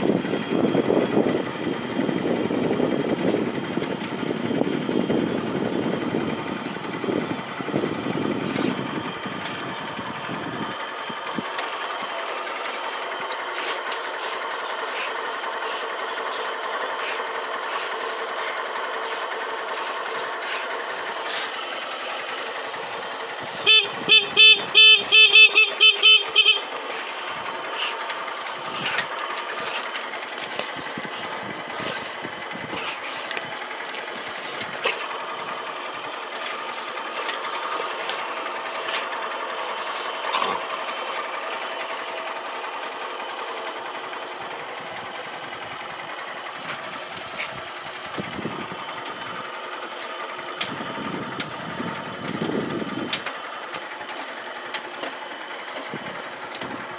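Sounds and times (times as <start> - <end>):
motorcycle engine idling: 0.0 - 56.9
motorcycle horn beeping: 23.5 - 26.9.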